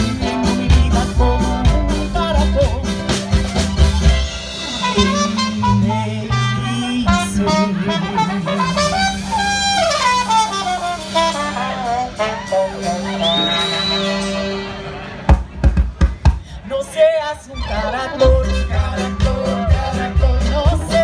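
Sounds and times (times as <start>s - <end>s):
trumpet melody: 0.0s - 15.3s
acoustic guitar: 0.0s - 21.0s
upright bass: 0.0s - 21.0s
mandolin: 17.5s - 21.0s.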